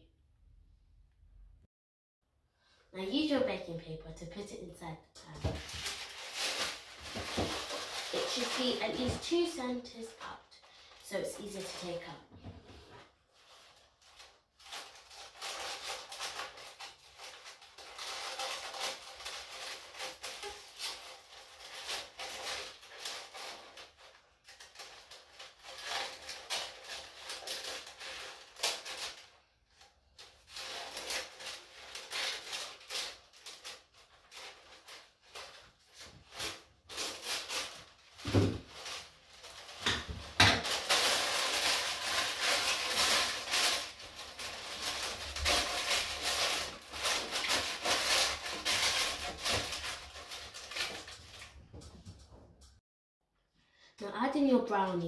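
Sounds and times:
baking paper rustling: 5.3 - 52.2
scissors cutting paper: 14.7 - 29.2, 40.6 - 51.5.

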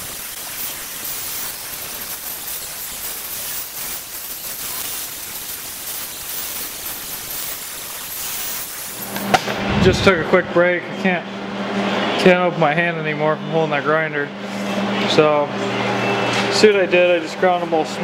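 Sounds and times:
angle grinder on metal: 0.0 - 9.5.

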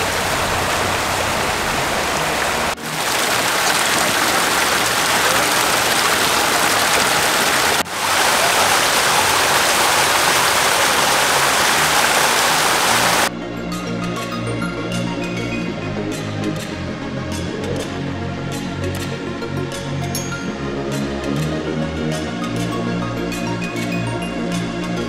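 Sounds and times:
waterfall rushing over rocks: 0.0 - 13.3.

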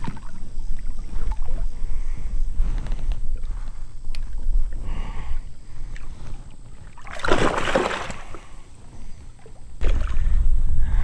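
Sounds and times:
wind rumble on microphone: 0.0 - 7.5, 8.2 - 11.0
fish splashing at water surface: 7.0 - 8.5.

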